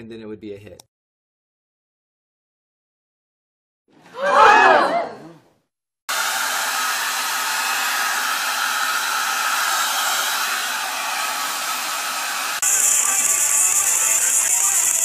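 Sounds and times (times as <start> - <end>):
hair dryer blowing: 6.1 - 15.0.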